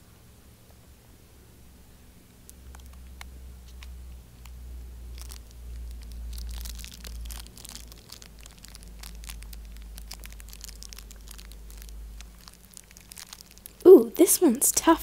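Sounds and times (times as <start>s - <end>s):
low steady rumble: 0.0s - 15.0s
plastic foil bag crinkling: 5.0s - 15.0s.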